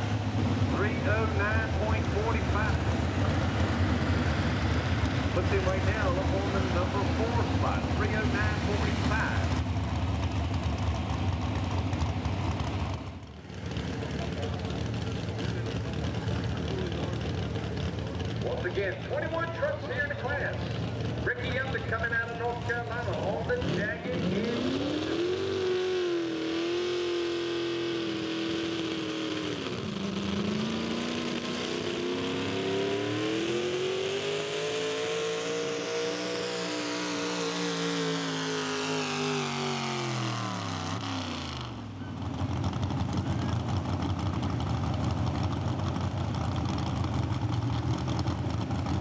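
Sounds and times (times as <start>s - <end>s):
engine idling: 0.0s - 24.1s, 39.8s - 49.0s
truck engine revving at full throttle: 0.0s - 49.0s.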